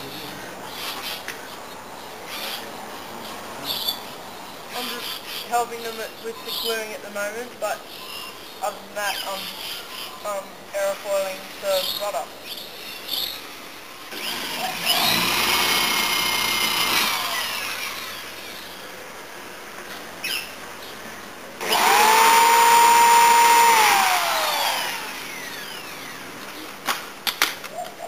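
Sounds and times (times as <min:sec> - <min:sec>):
electric drill whining: 0:14.1 - 0:18.2, 0:21.6 - 0:26.4.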